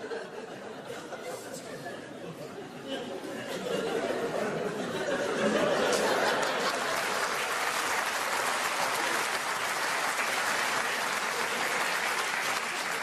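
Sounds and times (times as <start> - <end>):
audience clapping: 5.8 - 13.0.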